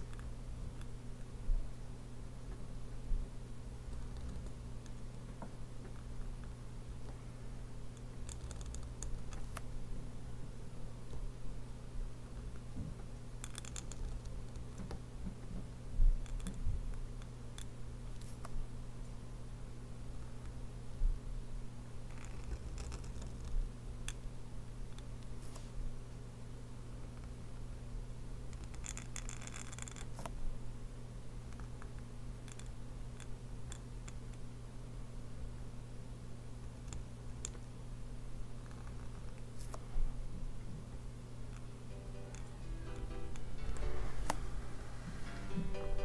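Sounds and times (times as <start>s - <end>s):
low steady hum: 0.0s - 46.0s
pen nib scratching on paper: 22.1s - 23.6s, 38.6s - 39.8s
low hum: 41.6s - 46.0s.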